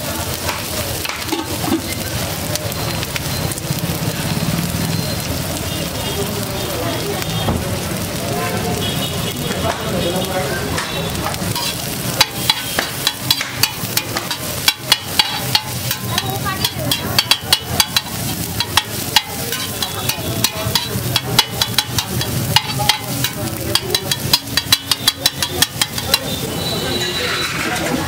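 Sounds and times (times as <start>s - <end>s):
food sizzling: 0.0s - 28.0s
metal spatula clanking on griddle: 0.3s - 2.0s, 10.8s - 28.0s.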